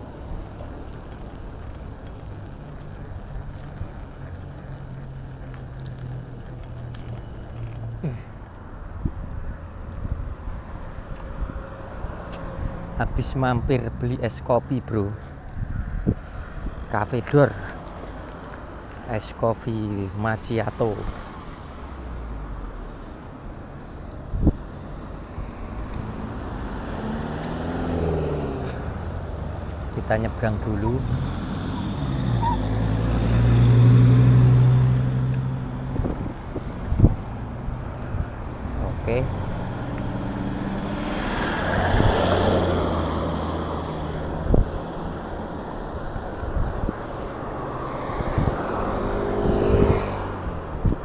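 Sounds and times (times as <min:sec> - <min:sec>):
street noise: 0:00.0 - 0:51.0
vehicle engine humming: 0:00.0 - 0:51.0
wind on microphone: 0:15.5 - 0:16.9, 0:35.0 - 0:39.6, 0:41.6 - 0:42.5, 0:44.3 - 0:44.9, 0:46.2 - 0:47.2, 0:48.0 - 0:51.0.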